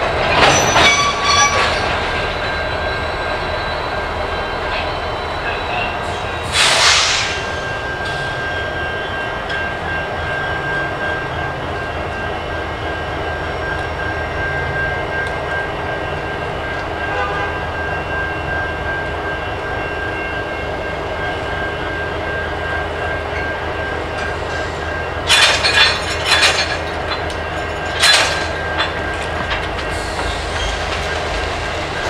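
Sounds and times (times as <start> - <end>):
diesel locomotives idling: 0.0 - 32.0.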